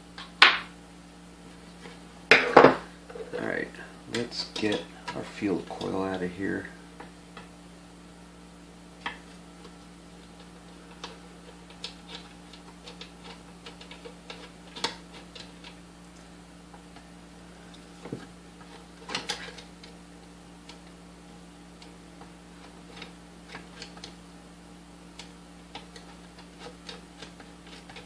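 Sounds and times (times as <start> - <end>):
steady low hum: 0.0 - 28.0
screwdriver scraping metal: 25.2 - 28.0.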